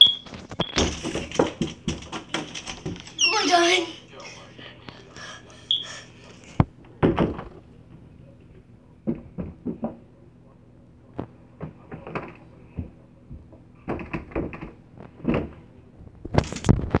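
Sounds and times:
door rattling: 0:00.0 - 0:03.8.

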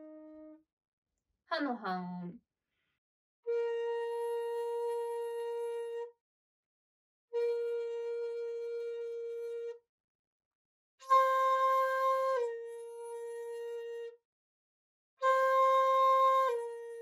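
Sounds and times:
bamboo flute held notes: 0:00.0 - 0:00.6, 0:03.5 - 0:06.2, 0:07.4 - 0:09.8, 0:11.0 - 0:14.2, 0:15.2 - 0:17.0.

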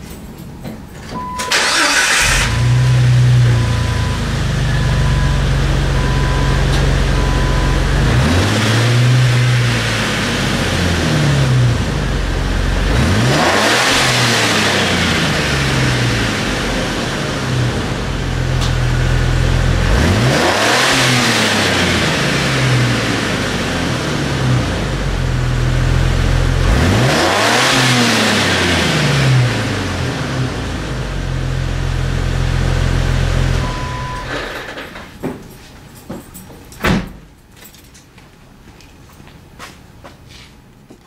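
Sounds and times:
car engine idling and revving: 0:01.5 - 0:34.4.

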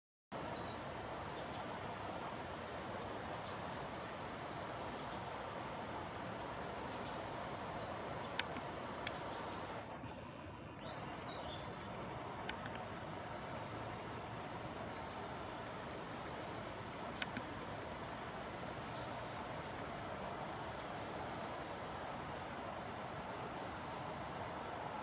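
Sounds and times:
steady rushing noise: 0:00.7 - 0:25.0
sharp clicks: 0:08.3 - 0:09.8, 0:12.4 - 0:12.9, 0:17.1 - 0:17.5.

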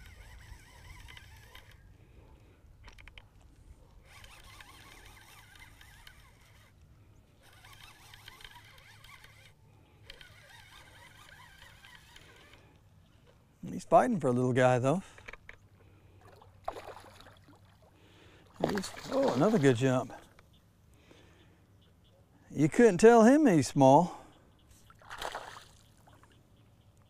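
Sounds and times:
fishing reel whirring: 0:00.0 - 0:01.9, 0:04.0 - 0:06.8, 0:07.4 - 0:12.8.

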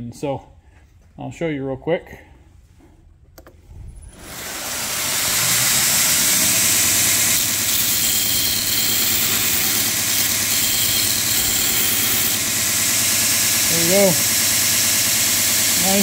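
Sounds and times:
belt grinder running: 0:04.1 - 0:16.0
grinding on belt: 0:05.4 - 0:16.0.

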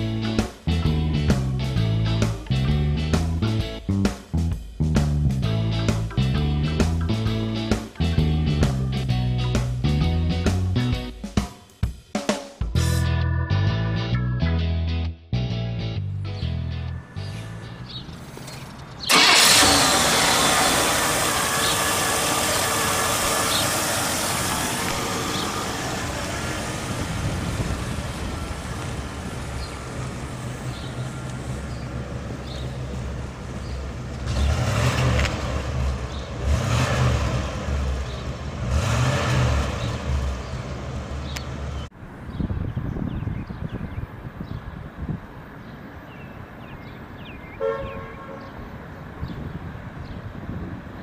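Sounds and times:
car engine driving: 0:16.1 - 0:42.0
car engine starting and idling: 0:16.4 - 0:41.9
car engine revving: 0:17.1 - 0:41.9.

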